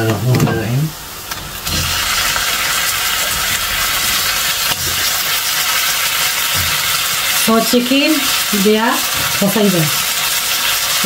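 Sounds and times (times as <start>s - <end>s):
chicken sizzling in hot oil: 1.1s - 11.0s.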